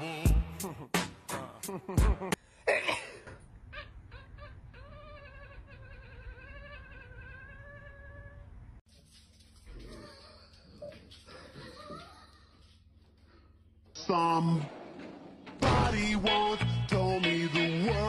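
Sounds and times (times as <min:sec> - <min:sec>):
cat yowling: 0:03.7 - 0:08.5.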